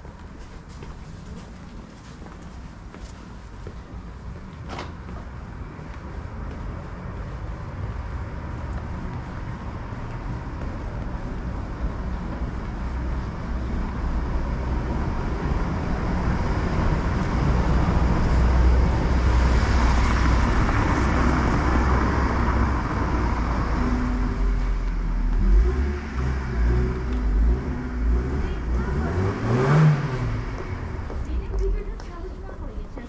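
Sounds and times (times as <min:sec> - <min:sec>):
car passing by: 0:12.9 - 0:31.7.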